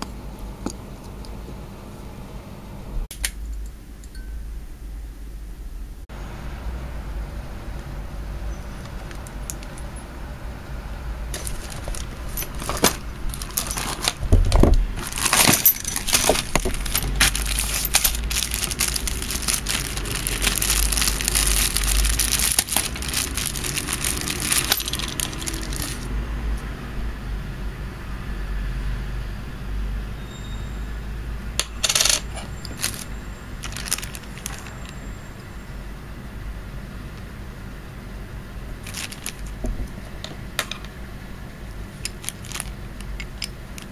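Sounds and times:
plastic bag crinkling: 0:11.4 - 0:26.1, 0:31.8 - 0:35.2, 0:38.8 - 0:39.7, 0:42.0 - 0:43.9
plastic parts clicking: 0:11.4 - 0:26.1, 0:31.6 - 0:34.9, 0:42.0 - 0:43.9.

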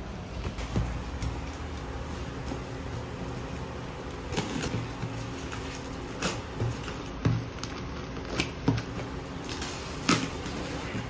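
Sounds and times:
steady low hum: 0:00.0 - 0:11.0
box cutter slitting tape: 0:04.3 - 0:04.9.

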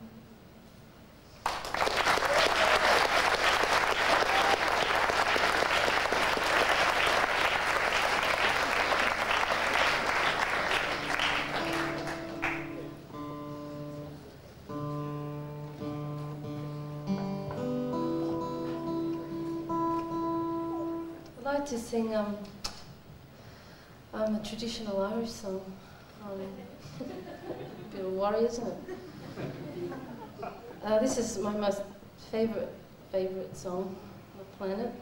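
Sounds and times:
audience applauding: 0:01.4 - 0:13.1
acoustic guitar notes: 0:10.3 - 0:22.1.

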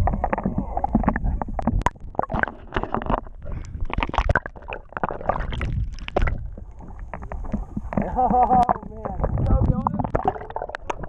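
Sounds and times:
low churning rumble: 0:00.0 - 0:11.0
muffled underwater water sloshing: 0:00.0 - 0:11.0.

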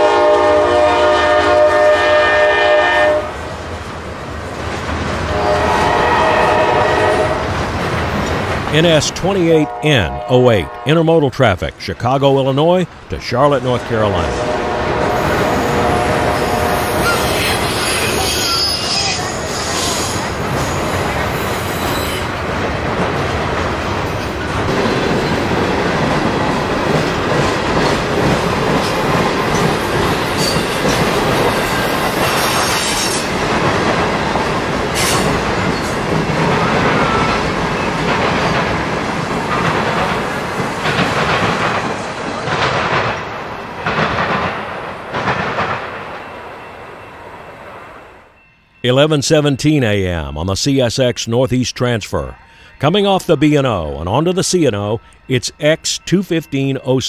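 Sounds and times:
train wheels rumbling on rail: 0:00.0 - 0:47.7
clickety-clack over rail joints: 0:03.7 - 0:09.5, 0:20.0 - 0:46.4
wheel squeal: 0:16.9 - 0:20.2.

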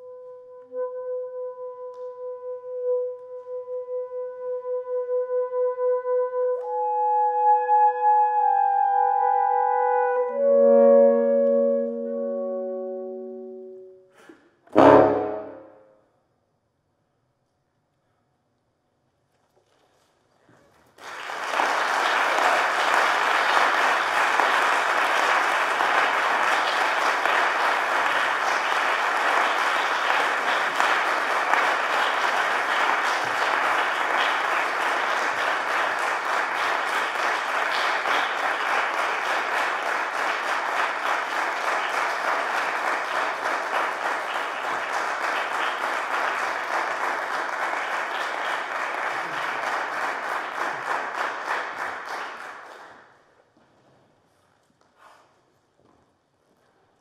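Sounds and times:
audience applauding: 0:20.8 - 0:53.2.

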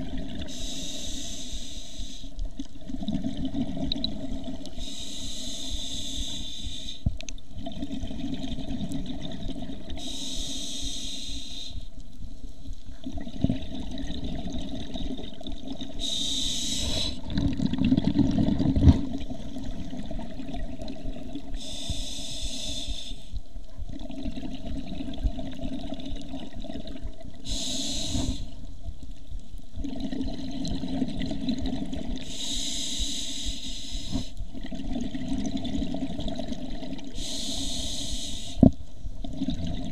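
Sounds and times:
regulator hissing inhale: 0:00.4 - 0:02.4, 0:04.7 - 0:07.1, 0:10.0 - 0:11.9, 0:16.0 - 0:17.2, 0:21.5 - 0:23.4, 0:27.4 - 0:28.6, 0:32.2 - 0:34.4, 0:37.1 - 0:38.7
exhaled bubbles: 0:02.5 - 0:06.8, 0:07.5 - 0:10.4, 0:13.0 - 0:23.0, 0:23.9 - 0:28.6, 0:29.8 - 0:33.2, 0:34.2 - 0:39.9.

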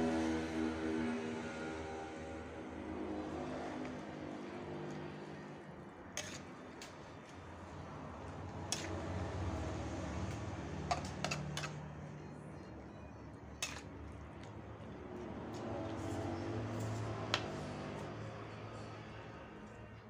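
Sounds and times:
metal ladle scraping steel wok: 0:06.2 - 0:06.6, 0:08.6 - 0:09.1, 0:10.9 - 0:11.8, 0:13.6 - 0:13.9.

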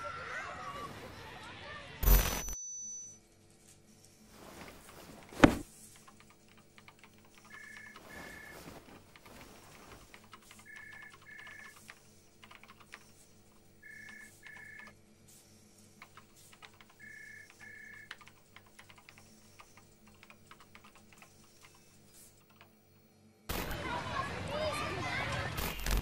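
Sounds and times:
computer keyboard typing: 0:05.9 - 0:14.9, 0:16.0 - 0:22.8.

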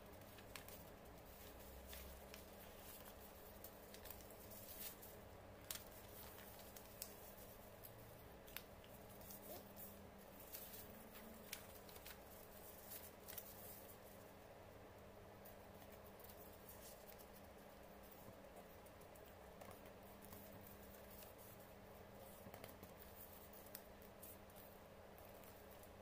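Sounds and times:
paper rustling: 0:00.1 - 0:14.2.

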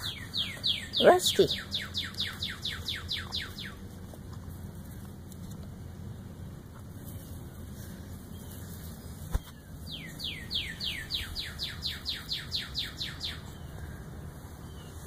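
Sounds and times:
bird singing whistled notes: 0:00.0 - 0:03.8, 0:09.9 - 0:13.7.

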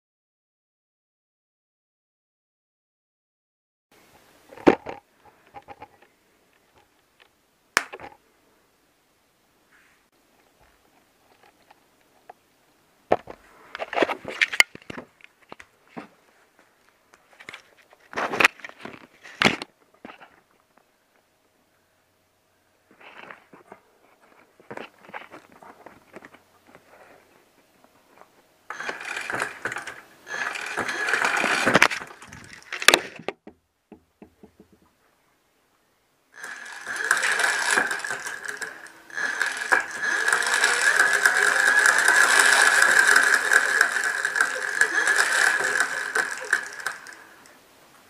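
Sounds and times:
electric motor whine: 0:28.7 - 0:32.9, 0:36.4 - 0:47.5
chain and pedals rattling: 0:28.7 - 0:33.2, 0:36.4 - 0:47.5.

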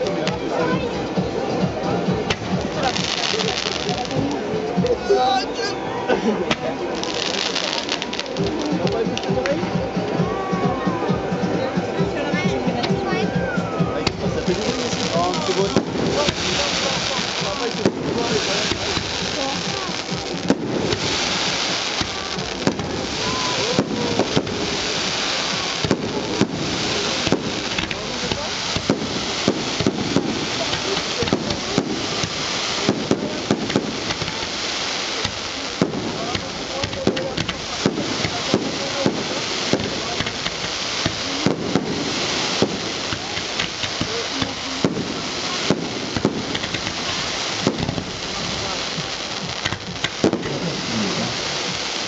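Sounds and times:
crackling hiss of fireworks: 0:00.0 - 0:52.0
firework shells bursting: 0:14.0 - 0:52.0.

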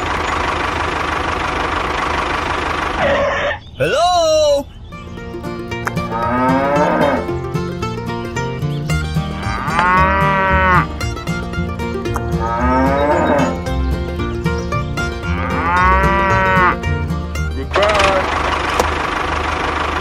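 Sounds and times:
background music with beat: 0:05.4 - 0:17.6
cattle mooing: 0:06.0 - 0:07.4, 0:09.3 - 0:11.0, 0:12.2 - 0:13.7, 0:15.2 - 0:16.9.

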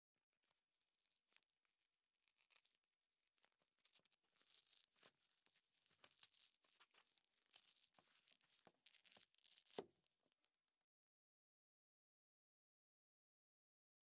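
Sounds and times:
scouring sponge rustling: 0:03.2 - 0:09.8.

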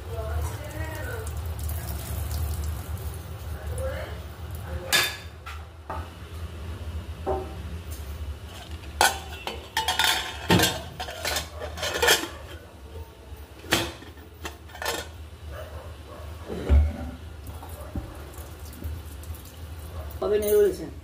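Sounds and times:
metal pot lid clinking: 0:08.6 - 0:12.6, 0:13.7 - 0:15.2.

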